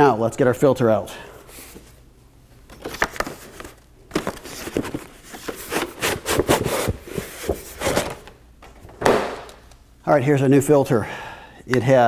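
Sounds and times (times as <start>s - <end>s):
cardboard box rustling and scraping: 4.2s - 8.2s.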